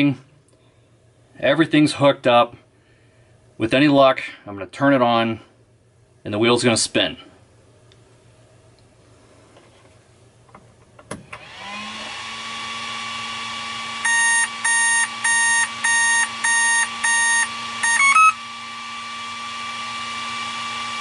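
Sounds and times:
electric motor whine: 11.4 - 21.0
electronic beeps: 14.1 - 18.4.

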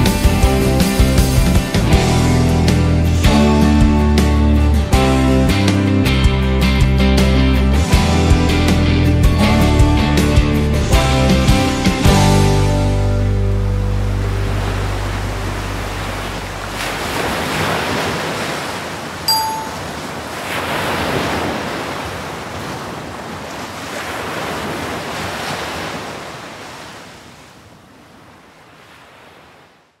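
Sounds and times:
surf washing in: 12.8 - 30.0
short bright chime: 19.3 - 20.0.

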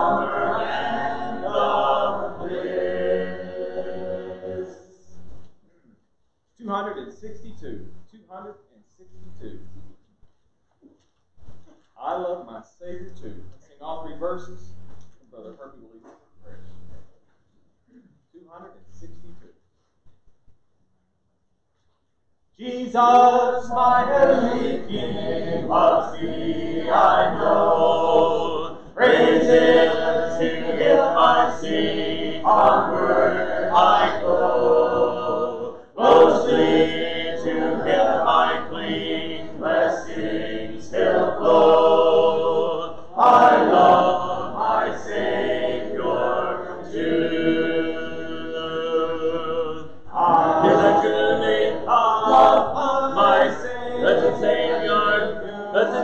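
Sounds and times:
congregation singing a hymn: 0.0 - 5.4, 22.6 - 56.0.

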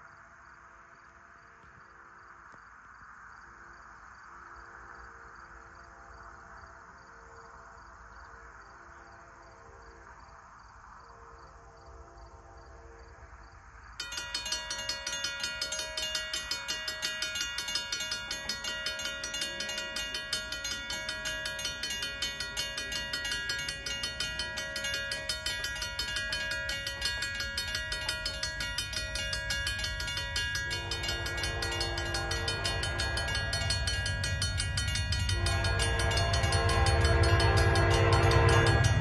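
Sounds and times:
railroad crossing bell ringing: 14.0 - 39.0.

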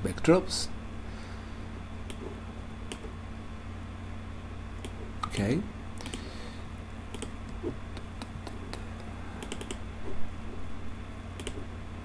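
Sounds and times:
steady low hum: 0.0 - 12.0
mouse and keyboard clicks: 7.1 - 8.8, 9.4 - 9.8, 11.4 - 11.6.

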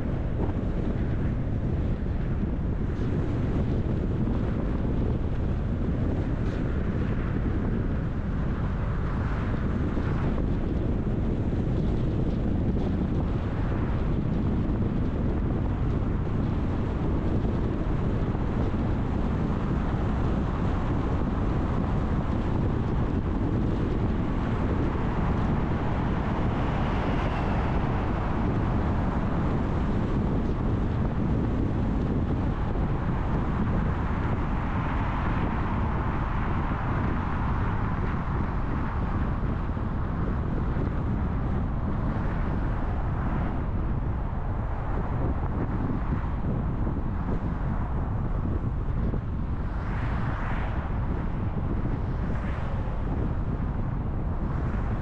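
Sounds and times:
tyre road noise: 0.0 - 55.0
car engine rumble: 21.4 - 40.1.

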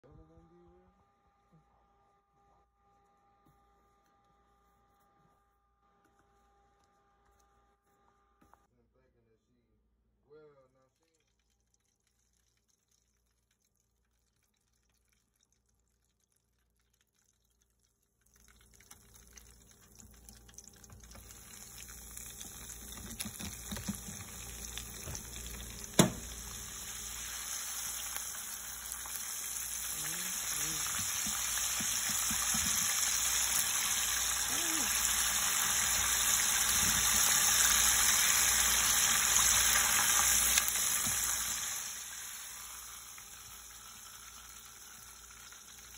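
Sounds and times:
oil sizzling in a deep fryer: 11.1 - 45.9.

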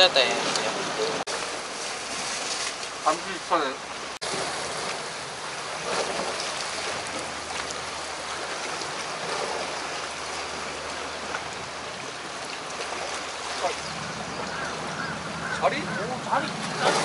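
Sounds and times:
sea water washing against rocks: 0.0 - 17.0.

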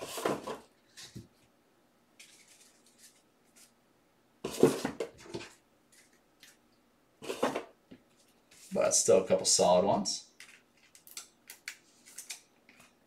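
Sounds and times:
cards sliding and rustling: 2.2 - 3.8, 10.4 - 13.0.

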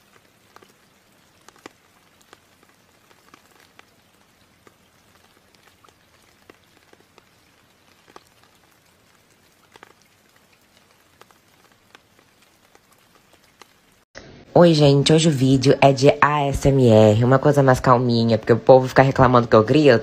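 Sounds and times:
faint steady hiss: 0.0 - 20.0
soft pattering clicks: 0.1 - 13.8.

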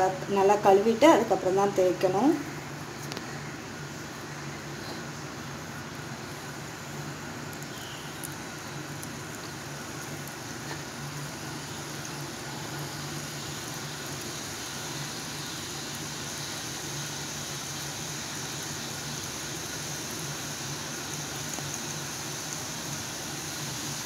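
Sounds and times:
dough sizzling in hot oil: 0.0 - 24.0.

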